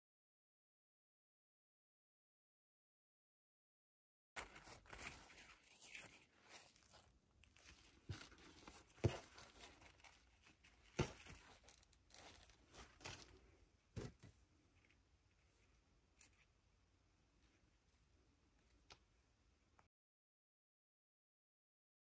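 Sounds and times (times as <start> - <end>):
fabric ribbon rustling: 4.4 - 16.6.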